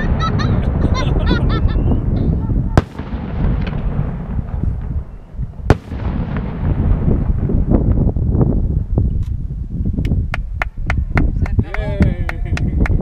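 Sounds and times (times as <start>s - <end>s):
sharp firework bangs: 0.0s - 8.5s
fireworks booming: 0.0s - 9.2s
small firework cracks: 2.8s - 5.0s, 5.6s - 7.3s.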